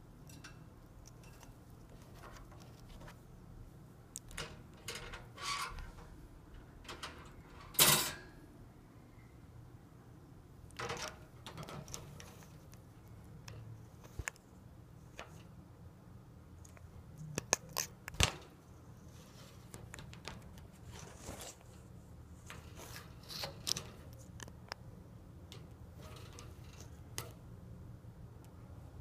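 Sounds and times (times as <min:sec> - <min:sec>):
parrot beak clicking and crunching: 0:16.6 - 0:18.2.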